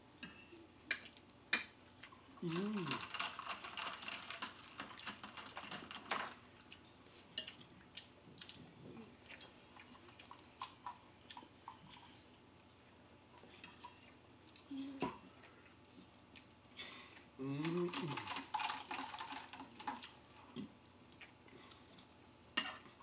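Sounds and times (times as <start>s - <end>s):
chewing: 1.0s - 22.2s.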